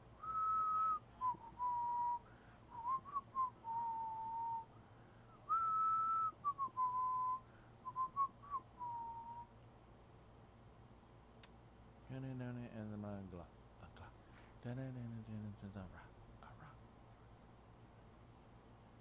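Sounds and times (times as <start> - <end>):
person whistling a tune: 0.2 - 4.7, 5.4 - 9.5.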